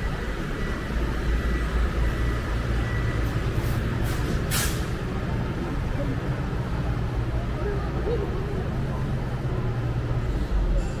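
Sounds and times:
street traffic rumble: 0.0s - 11.0s
short air hisses: 4.1s - 4.9s.

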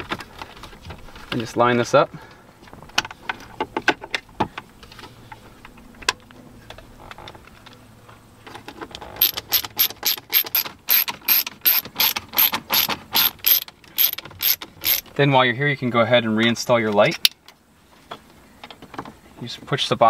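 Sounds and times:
ratcheting screwdriver clicking: 9.2s - 15.1s.

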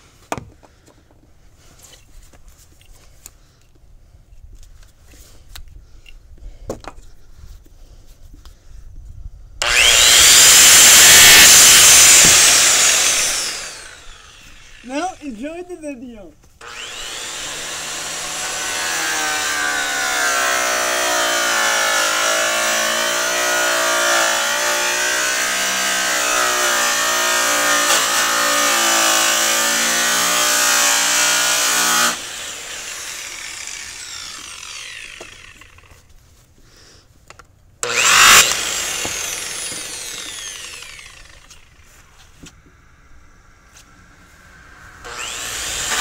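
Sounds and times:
angle grinder running: 9.6s - 15.6s, 16.6s - 36.0s, 37.8s - 42.2s, 42.8s - 46.0s.

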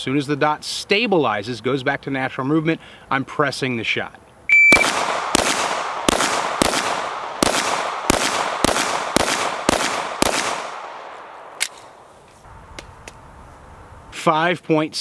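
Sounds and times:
handgun shots with echo: 4.7s - 12.0s.

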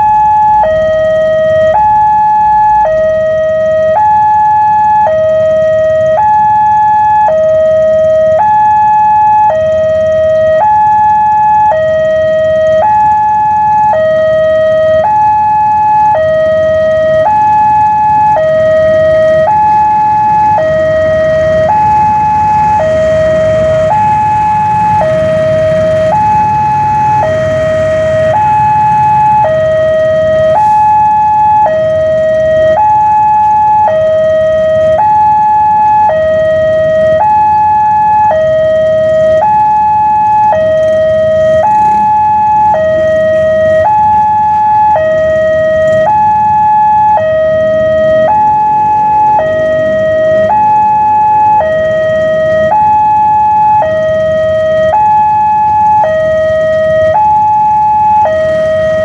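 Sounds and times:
two-tone warning alarm: 0.0s - 59.0s
train rumbling: 20.5s - 31.1s.

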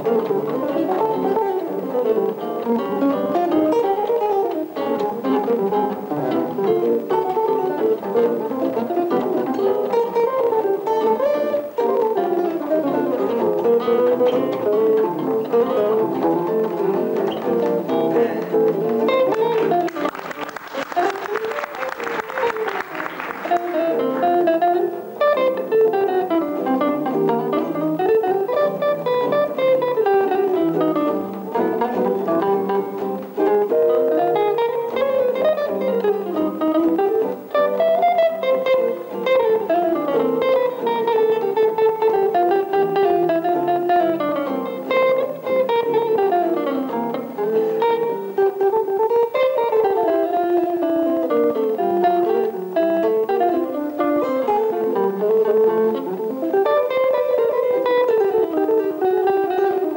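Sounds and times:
electric jazz guitars duet: 0.0s - 59.9s
applause: 19.2s - 24.2s.

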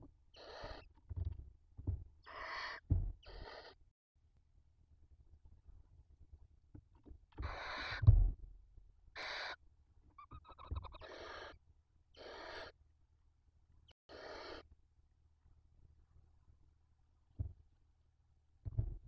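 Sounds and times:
owl chicks hissing begging calls: 0.4s - 0.9s, 2.3s - 3.8s, 7.4s - 8.0s, 9.2s - 9.6s, 10.2s - 11.6s, 12.2s - 12.8s, 14.1s - 14.7s.

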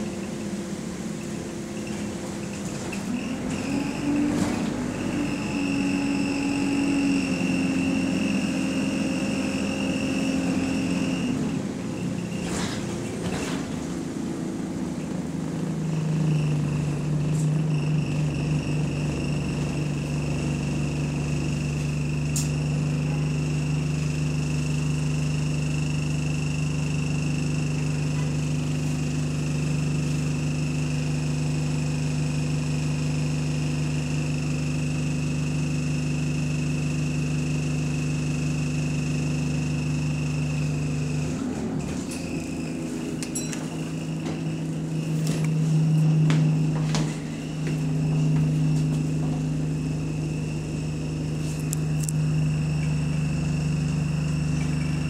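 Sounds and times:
engine cooling fan droning: 37.6s - 55.0s.

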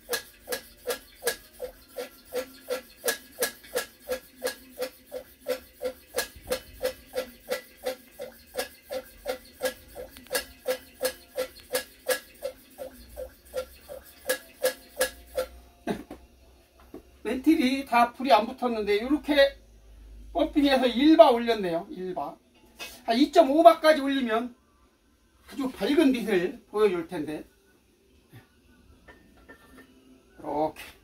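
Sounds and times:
hand air pump clicking: 0.0s - 15.5s.

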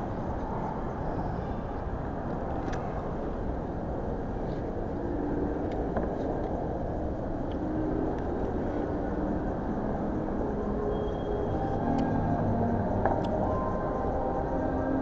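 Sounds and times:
low rumble of room noise: 0.0s - 15.0s
faint clicks: 2.3s - 2.9s.

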